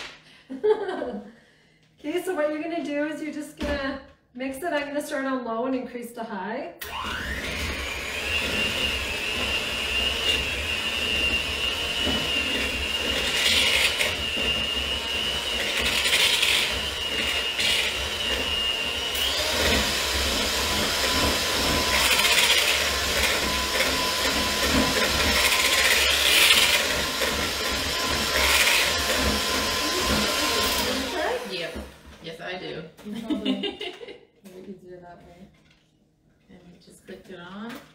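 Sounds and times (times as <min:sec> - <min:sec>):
electric hand mixer whine: 0:06.8 - 0:32.6.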